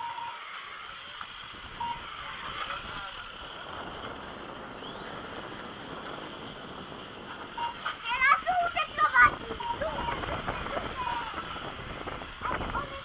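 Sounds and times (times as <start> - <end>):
remote control cars whirring: 0.1 - 13.0
short beep: 1.8 - 2.2, 9.6 - 10.3.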